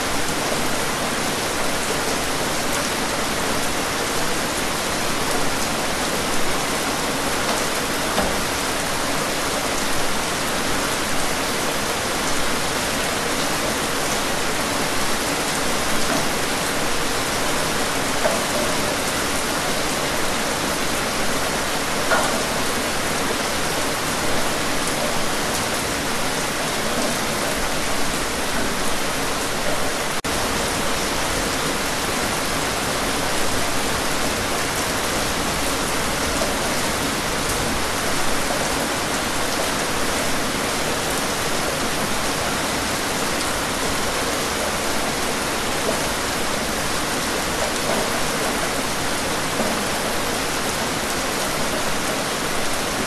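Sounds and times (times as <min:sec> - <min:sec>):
steady rain: 0:00.0 - 0:53.0
rain drop taps: 0:07.5 - 0:08.5, 0:22.0 - 0:22.6.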